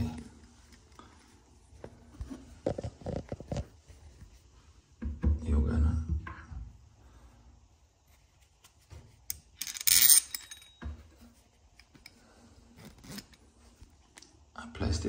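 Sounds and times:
metal parts clinking: 9.3s - 10.8s.

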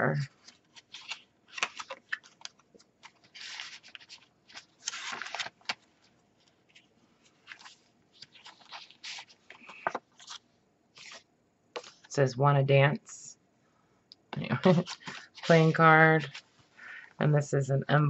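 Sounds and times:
paper rustling and crinkling: 0.1s - 11.2s, 11.8s - 12.1s, 14.5s - 17.0s.

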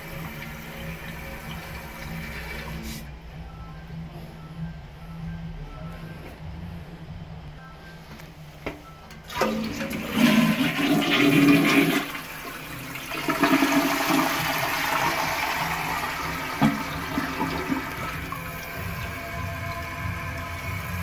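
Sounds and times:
toilet flushing: 0.0s - 3.1s, 9.2s - 21.0s
cistern refilling: 9.2s - 21.0s.

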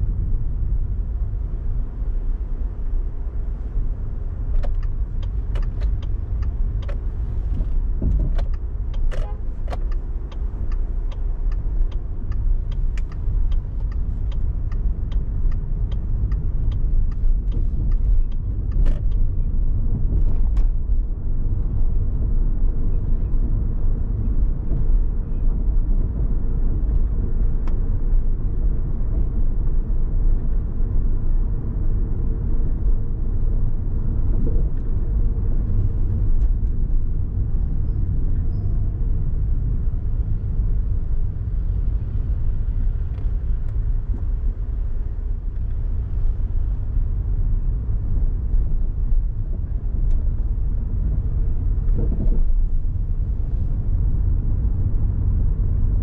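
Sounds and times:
car road and engine rumble: 0.0s - 56.0s
light evenly spaced ticks: 4.5s - 19.4s.

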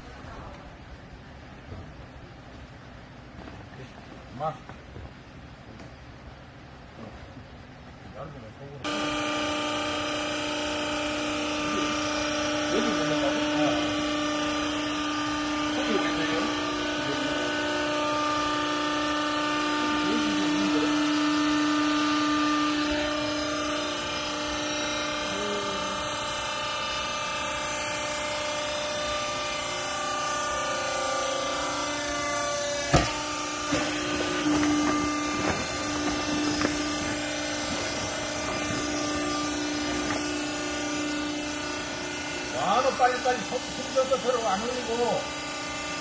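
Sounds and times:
hydraulic unit humming: 0.0s - 46.0s
sharp knock: 32.9s - 33.9s.

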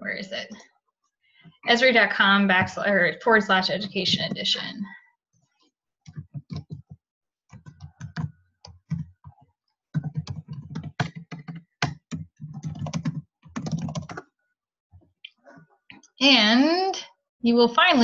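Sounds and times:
typing on computer keyboard: 6.1s - 9.4s, 10.0s - 14.2s.

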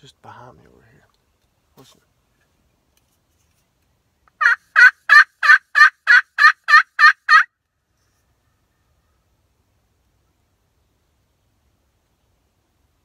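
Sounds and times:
turkey call hen yelps: 4.4s - 7.5s.

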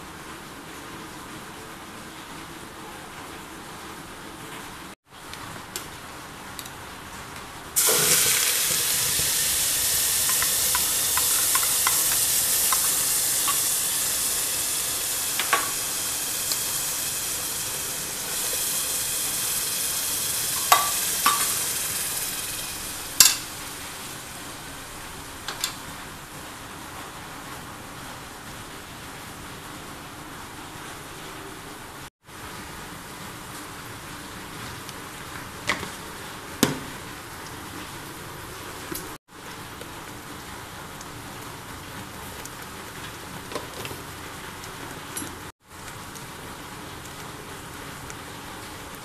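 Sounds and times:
hot oil sizzling: 7.6s - 27.0s.

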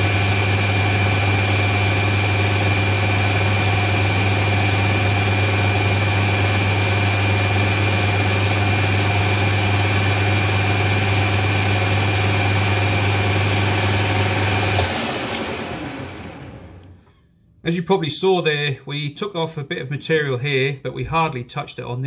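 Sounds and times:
metal lathe running: 0.0s - 16.8s
high whine of lathe cutting: 0.0s - 16.9s.

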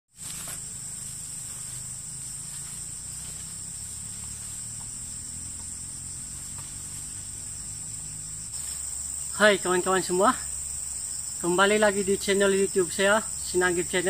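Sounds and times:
forest insects buzzing: 0.1s - 14.0s
faint ticks: 4.2s - 7.3s.

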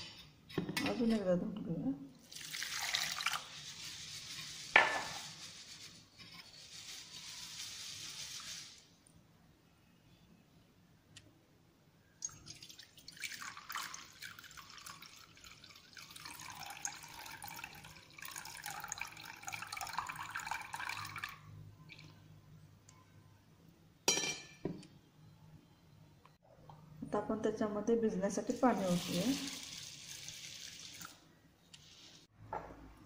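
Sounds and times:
water pouring into metal bowl: 2.2s - 4.0s, 12.2s - 22.1s, 28.7s - 31.2s.

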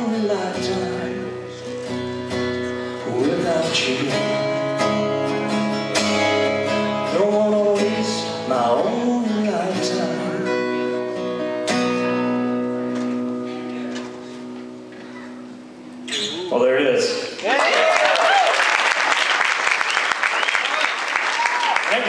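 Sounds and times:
man singing: 0.0s - 1.8s, 2.8s - 5.3s, 6.9s - 11.0s
acoustic guitar strumming: 0.0s - 16.6s.

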